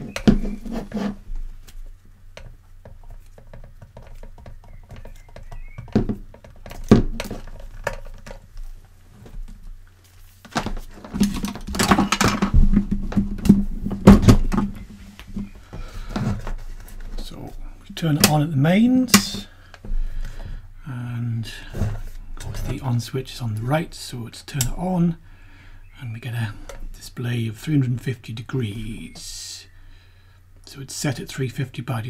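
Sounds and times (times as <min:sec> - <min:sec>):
cable rustling and scraping: 0:00.0 - 0:02.0, 0:06.4 - 0:17.7.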